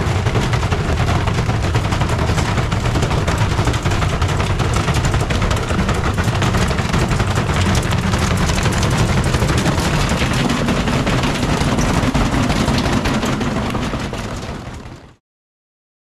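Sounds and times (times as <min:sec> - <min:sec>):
washing machine banging and rattling: 0:00.0 - 0:15.1.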